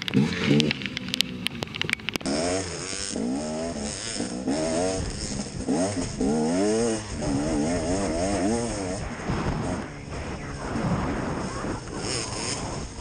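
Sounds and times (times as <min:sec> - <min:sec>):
sharp clicks and taps: 0:00.0 - 0:02.3
motorcycle engine revving: 0:00.0 - 0:13.0
wind noise: 0:04.8 - 0:13.0.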